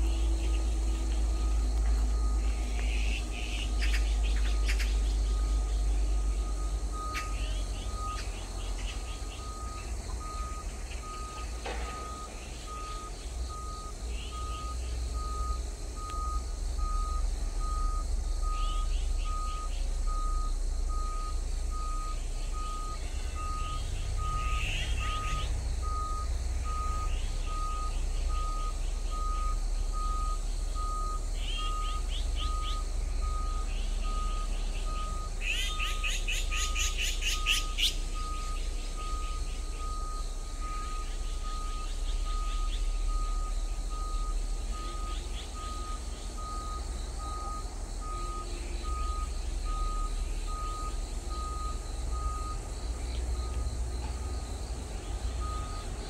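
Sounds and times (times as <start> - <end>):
electronic beep: 0.0 - 54.4
magpies calling harshly: 2.4 - 6.3, 23.0 - 25.5, 34.5 - 39.5.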